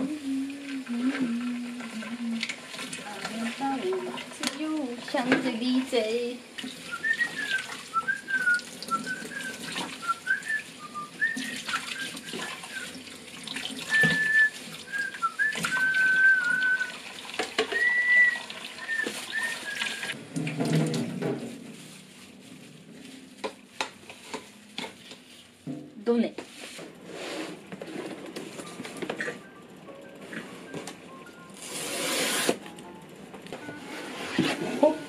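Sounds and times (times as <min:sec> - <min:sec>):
person whistling a tune: 0:06.9 - 0:12.9, 0:13.9 - 0:17.0, 0:17.7 - 0:20.2.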